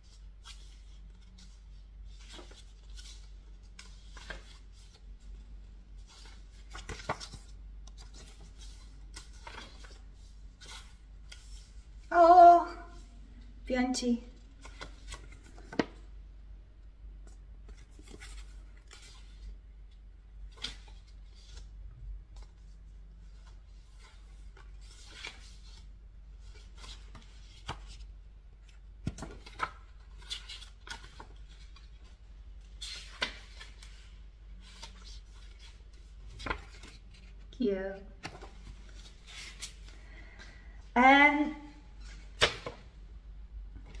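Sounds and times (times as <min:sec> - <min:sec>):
paper pages rustling: 0:00.0 - 0:12.0, 0:14.4 - 0:16.1, 0:17.2 - 0:19.6, 0:20.4 - 0:37.5, 0:38.2 - 0:40.1
low steady hum: 0:00.0 - 0:44.0.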